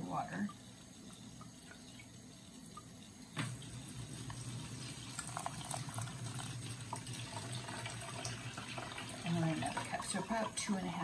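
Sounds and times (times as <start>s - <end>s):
water pouring through strainer: 3.4s - 11.0s.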